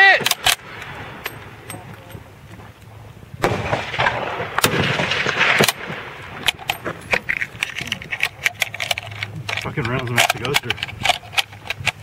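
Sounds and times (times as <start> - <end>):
rifle shot: 3.4 - 7.0.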